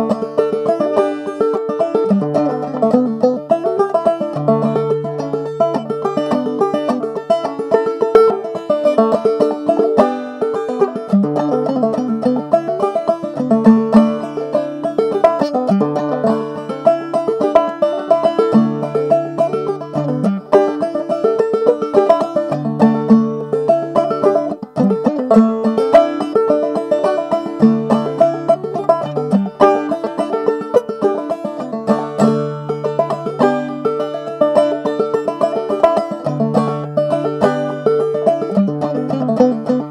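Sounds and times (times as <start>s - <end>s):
banjo playing fast reel: 0.0s - 39.9s.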